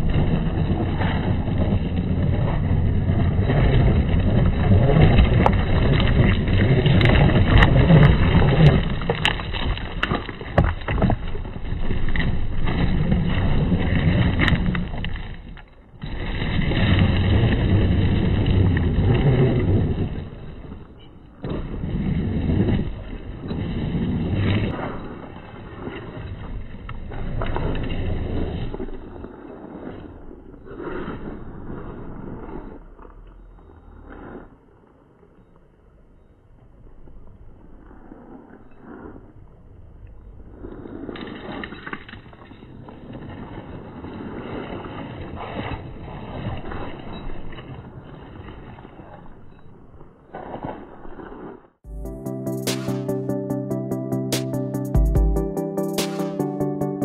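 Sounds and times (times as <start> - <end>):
tyres rolling over dirt: 0.0 - 35.2.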